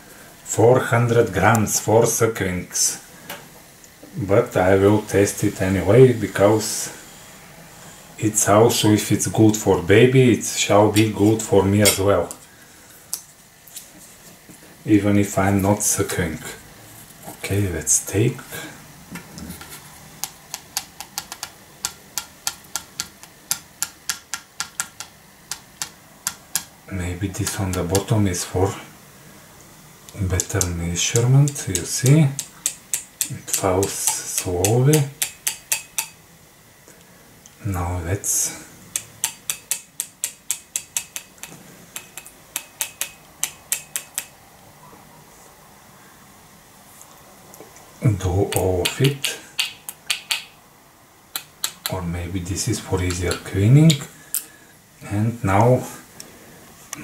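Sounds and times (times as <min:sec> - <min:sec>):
plastic scoop tapping clicks: 0:20.2 - 0:26.7, 0:48.5 - 0:50.5.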